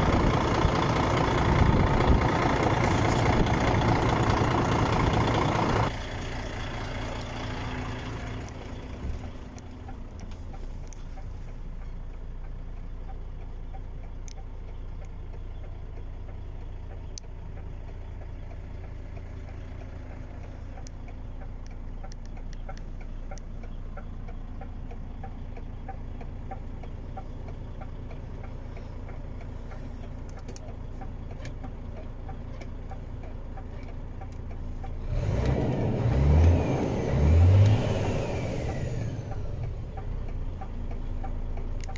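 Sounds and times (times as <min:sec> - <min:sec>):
diesel truck engine idling: 0:00.0 - 0:41.9.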